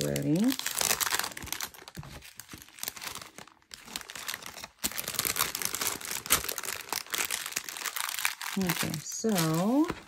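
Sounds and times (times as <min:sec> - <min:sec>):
plastic bags crinkling: 0:00.0 - 0:10.0.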